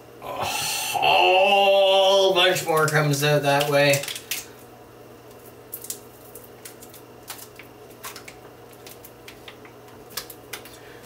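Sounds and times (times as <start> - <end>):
faint steady hum: 0.0 - 11.0
plastic pouch crinkling: 2.6 - 4.6, 5.3 - 10.9.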